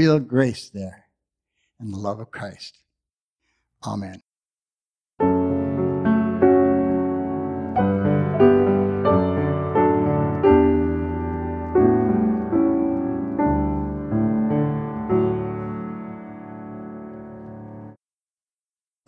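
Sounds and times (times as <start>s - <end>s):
piano playing slow chords: 5.2s - 18.0s.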